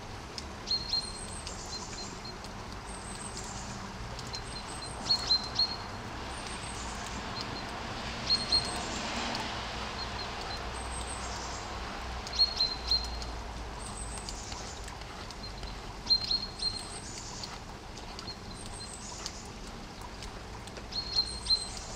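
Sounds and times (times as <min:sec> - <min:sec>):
steady rain: 0:00.0 - 0:21.9
bird chirping: 0:12.3 - 0:14.8, 0:15.5 - 0:17.5.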